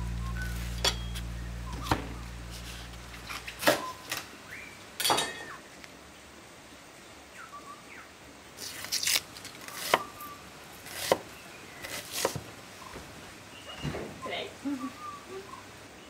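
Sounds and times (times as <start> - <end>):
corn husks rustling: 0.0 - 4.3, 8.6 - 11.2.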